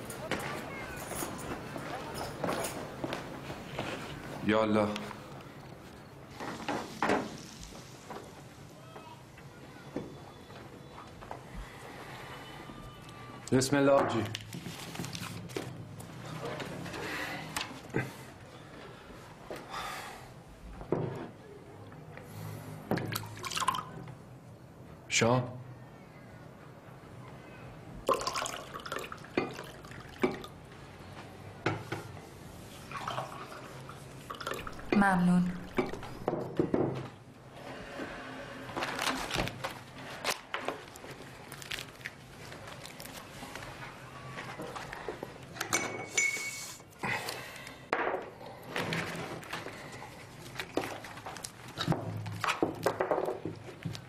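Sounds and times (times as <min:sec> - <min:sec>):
water pouring into a glass: 0:23.2 - 0:23.9, 0:28.1 - 0:30.5, 0:32.9 - 0:34.9
tableware clinking: 0:45.6 - 0:46.7
short ringing clink: 0:45.8 - 0:46.6.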